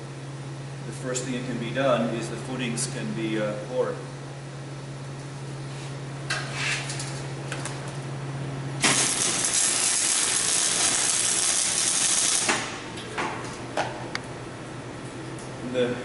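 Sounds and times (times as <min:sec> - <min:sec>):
welding arc crackling: 0:08.8 - 0:13.0.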